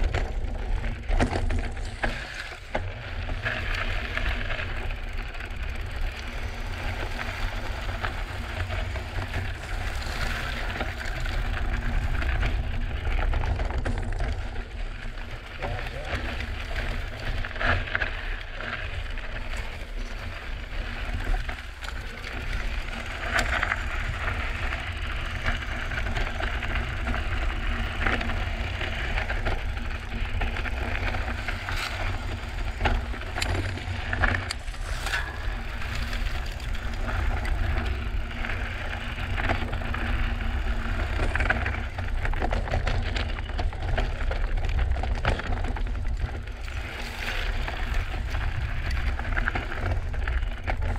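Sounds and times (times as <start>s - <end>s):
bike knocks and clatters: 0.0s - 9.9s
low rumble: 19.1s - 43.8s.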